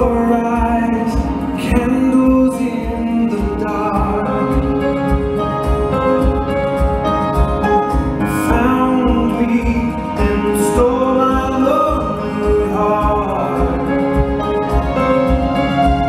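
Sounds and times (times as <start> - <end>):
man singing a slow ballad: 0.0 - 5.0, 8.2 - 14.6
band accompaniment: 0.0 - 16.0.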